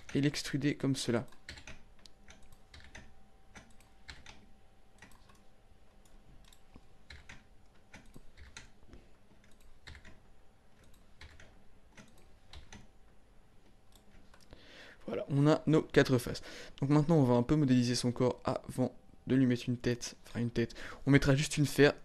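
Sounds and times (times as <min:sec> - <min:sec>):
keyboard keystrokes clicking: 0:01.2 - 0:10.2, 0:10.8 - 0:12.9.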